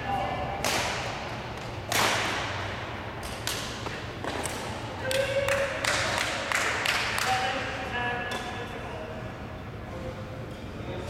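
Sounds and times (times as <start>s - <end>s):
rackets hitting shuttlecock: 0.6s - 6.4s.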